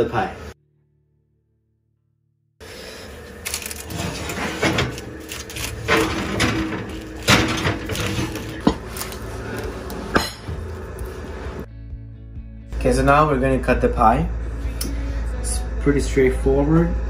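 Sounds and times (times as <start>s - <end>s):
low hum: 0.2s - 17.0s
ceramic dish clattering on oven rack: 5.8s - 8.8s.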